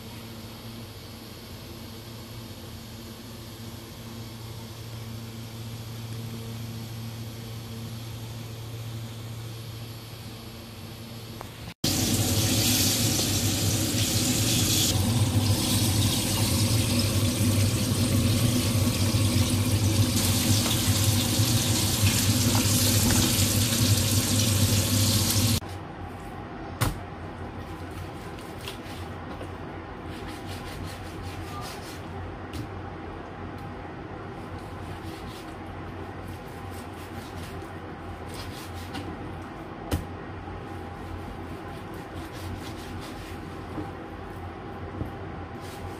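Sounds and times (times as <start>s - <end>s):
hot oil sizzling in a wok: 11.9s - 25.6s.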